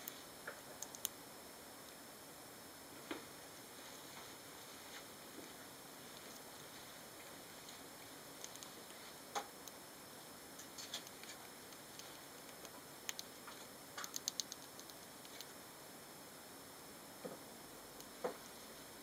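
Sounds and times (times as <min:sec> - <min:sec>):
faint steady hiss: 0:00.0 - 0:19.0
hamsters clicking and tapping: 0:08.4 - 0:09.5, 0:10.6 - 0:15.5.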